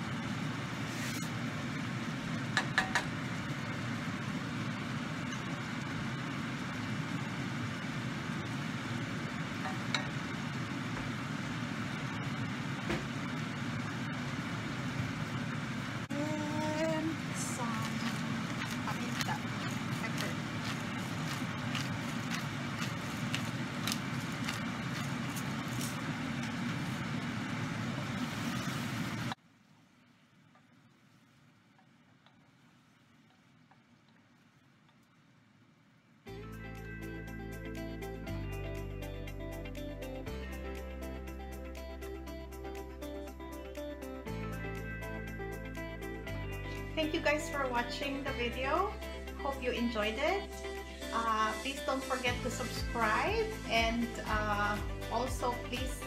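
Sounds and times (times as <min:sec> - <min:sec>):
stovetop cooking rushing noise: 0:00.0 - 0:36.2.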